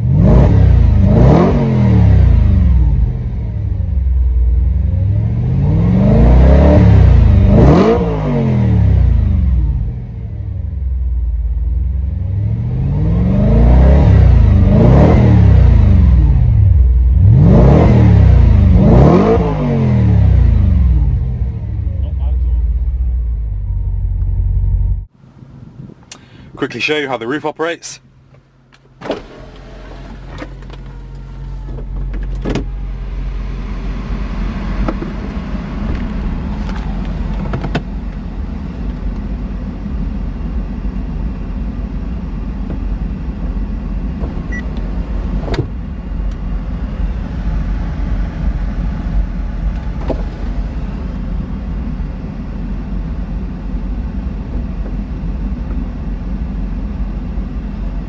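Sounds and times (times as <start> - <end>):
roof mechanism clunks and clicks: 28.3 - 32.8, 34.8 - 38.2, 44.2 - 46.4, 49.7 - 50.6.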